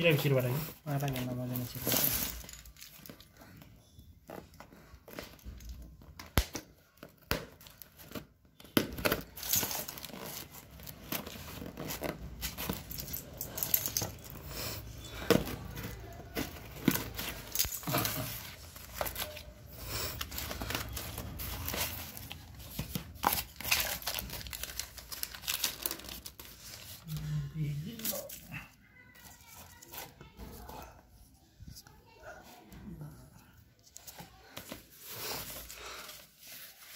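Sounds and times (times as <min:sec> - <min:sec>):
packaging crinkling and tearing: 0:08.9 - 0:30.1.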